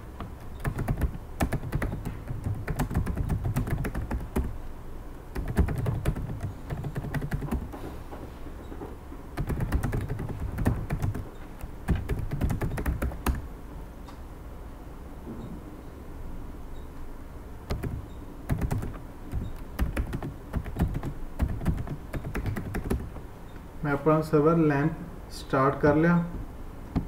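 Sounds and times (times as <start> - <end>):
computer keyboard typing: 0.2 - 4.6, 5.3 - 7.8, 9.4 - 13.5, 17.7 - 23.2.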